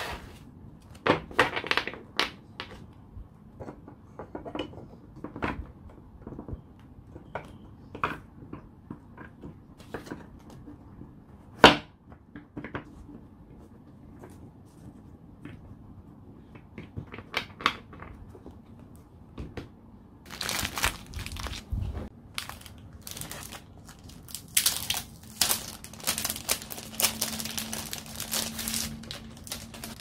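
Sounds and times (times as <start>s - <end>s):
packaging rustling: 20.3s - 30.0s.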